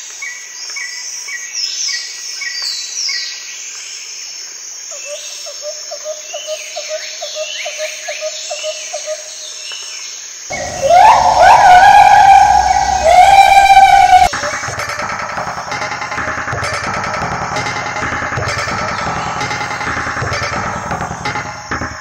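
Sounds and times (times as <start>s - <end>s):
birds chirping: 10.5s - 14.3s
loud pitched sound: 10.5s - 14.3s
short low notes: 10.5s - 14.3s
high insect drone: 10.5s - 22.0s.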